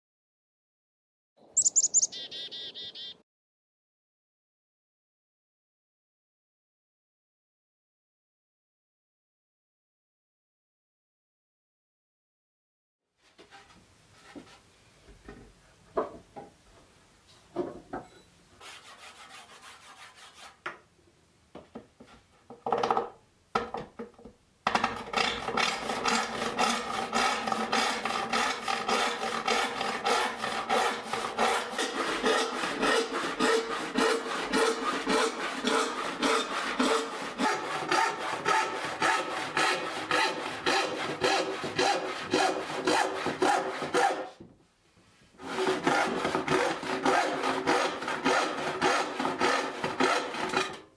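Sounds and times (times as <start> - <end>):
wood knocking and scraping on bench: 13.4 - 16.6, 17.5 - 18.2
handsaw rasping through wood: 18.6 - 20.6, 24.9 - 44.3, 45.4 - 50.8.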